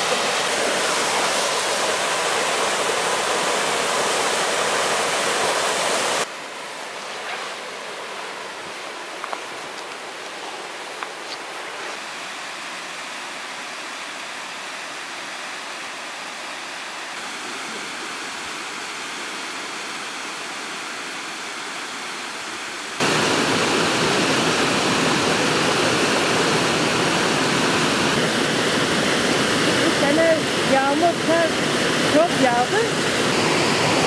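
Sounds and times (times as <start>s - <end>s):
waterfall rushing: 0.0s - 34.0s.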